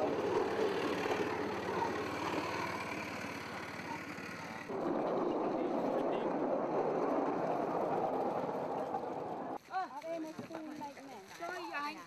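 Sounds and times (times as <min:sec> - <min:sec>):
motorized rail cart engine and rattle: 0:00.0 - 0:09.6.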